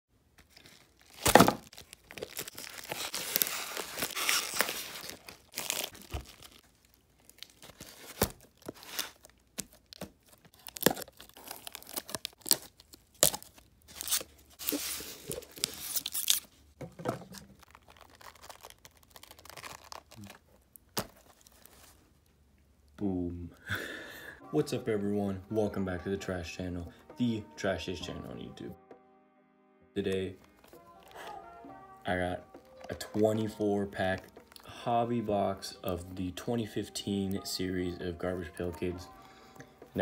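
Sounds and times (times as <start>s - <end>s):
tape tearing: 0.4s - 6.6s, 7.2s - 16.5s, 17.2s - 22.0s
blade slitting packing tape: 1.1s - 6.5s, 10.6s - 16.4s.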